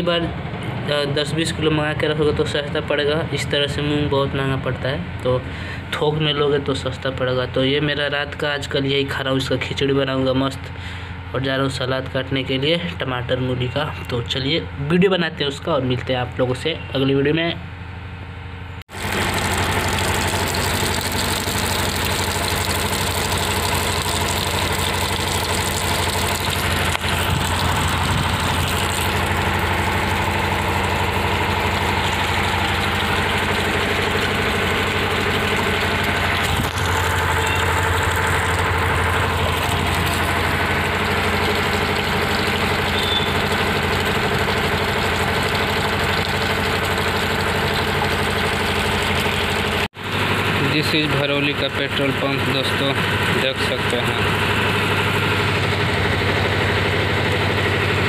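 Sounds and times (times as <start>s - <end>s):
water pouring into plastic bucket: 18.9s - 49.9s.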